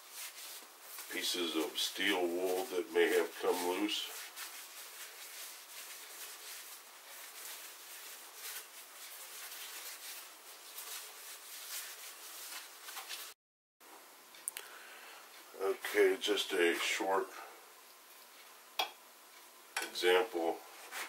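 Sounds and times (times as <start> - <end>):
cloth rubbing on wood: 0.0 - 13.4, 20.4 - 21.0.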